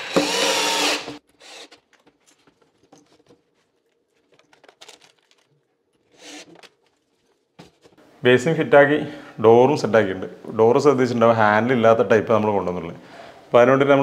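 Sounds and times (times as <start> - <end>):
cordless drill whirring: 0.0 - 1.8.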